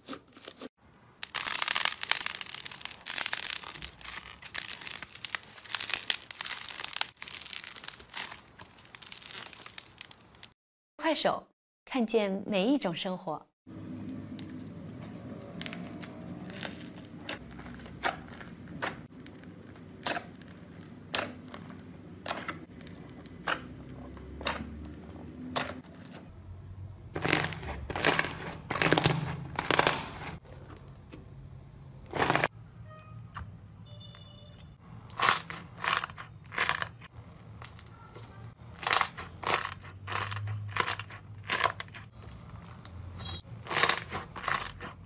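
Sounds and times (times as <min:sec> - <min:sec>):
crunchy slime squeezed by hand: 0:01.2 - 0:10.6, 0:27.2 - 0:30.3.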